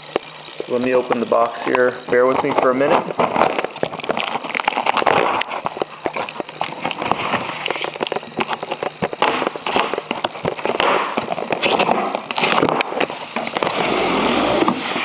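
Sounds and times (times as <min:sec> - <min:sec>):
cardboard box crackling and rustling: 0:02.5 - 0:14.0.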